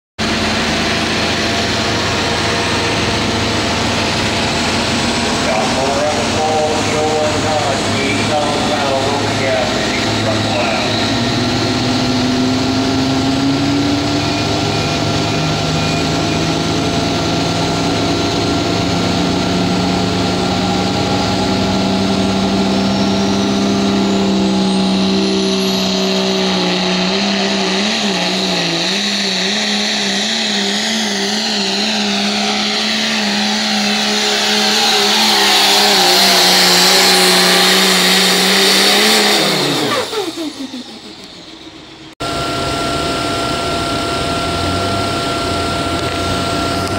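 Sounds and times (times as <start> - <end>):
diesel engine at high revs: 0.0 - 46.9
high whistle: 22.8 - 46.9.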